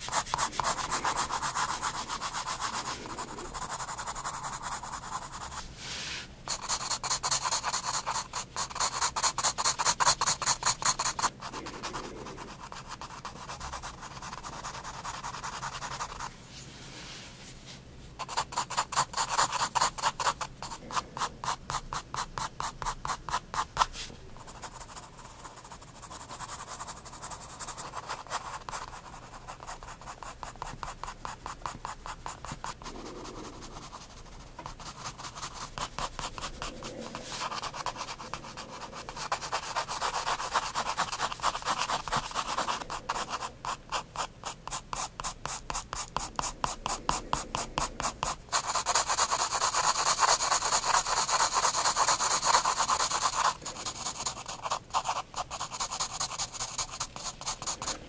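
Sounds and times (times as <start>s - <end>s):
pencil scratching on paper: 0.0s - 16.3s, 18.2s - 58.0s.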